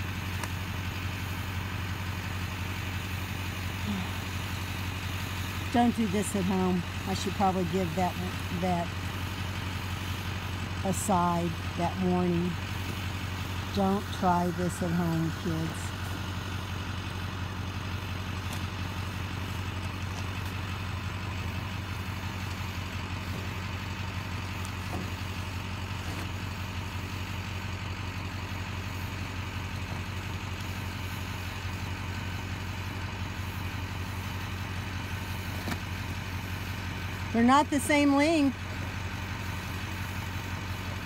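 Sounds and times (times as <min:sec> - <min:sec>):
vehicle engine idling: 0:00.0 - 0:41.0.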